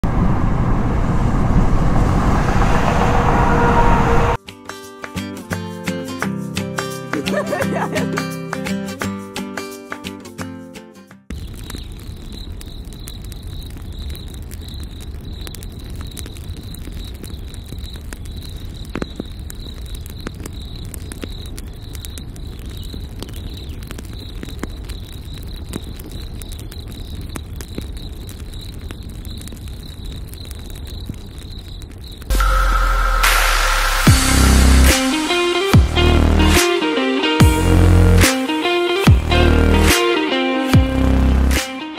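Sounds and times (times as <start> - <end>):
campfire crackling: 0.5 - 10.7, 11.3 - 41.9
crickets chirping: 11.4 - 35.8.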